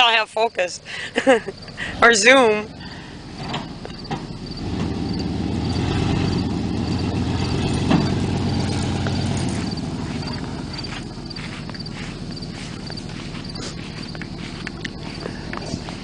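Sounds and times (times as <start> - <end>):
crickets chirping: 0.0 - 16.0
truck engine running: 1.0 - 16.0.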